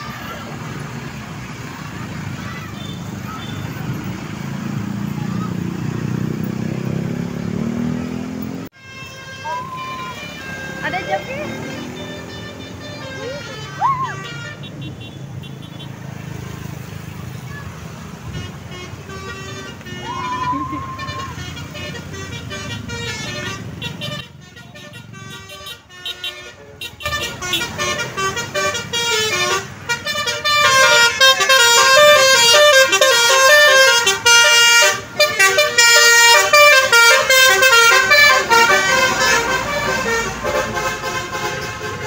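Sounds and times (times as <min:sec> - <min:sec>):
passing traffic: 0:00.0 - 0:42.0
bus musical horn melody: 0:08.7 - 0:16.0, 0:18.2 - 0:42.0.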